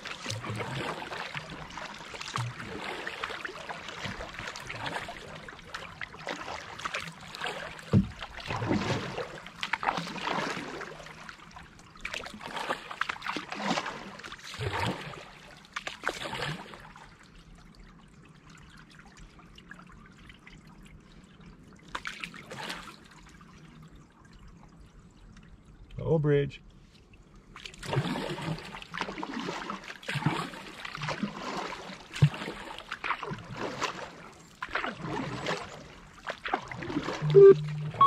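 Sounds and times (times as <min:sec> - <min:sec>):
canoe paddle splashing water: 0:00.0 - 0:17.2, 0:21.9 - 0:23.3, 0:27.5 - 0:38.0
quiet water: 0:00.0 - 0:38.0.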